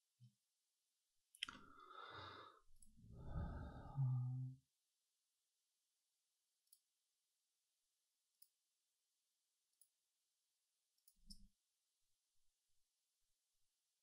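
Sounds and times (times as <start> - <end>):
low hum: 3.0 - 4.6.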